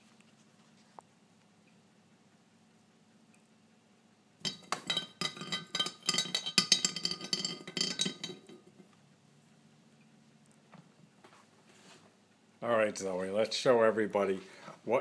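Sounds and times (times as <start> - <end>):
teapot lid clinking and rattling: 4.4 - 8.9.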